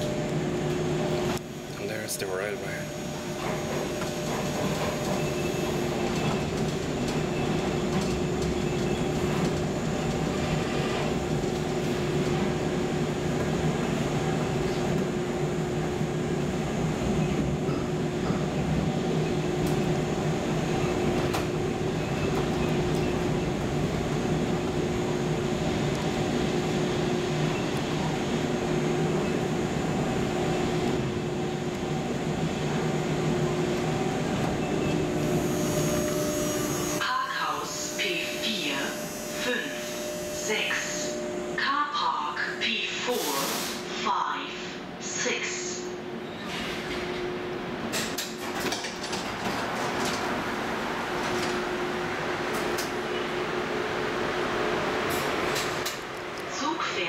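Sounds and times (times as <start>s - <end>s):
train running rumble: 0.0s - 44.2s.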